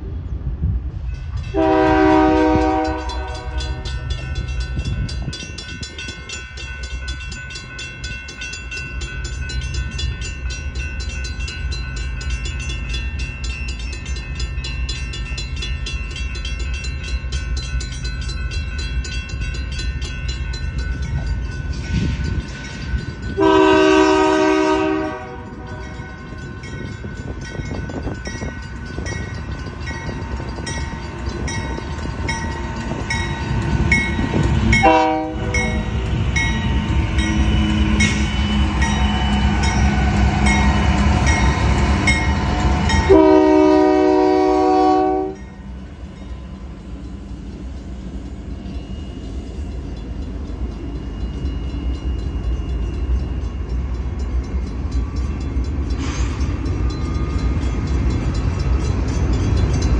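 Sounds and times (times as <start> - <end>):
train rumble: 0.0 - 59.9
railroad crossing bell ringing: 1.0 - 59.9
locomotive horn blasts: 1.5 - 4.0, 23.4 - 26.0, 34.8 - 35.9, 43.1 - 45.4.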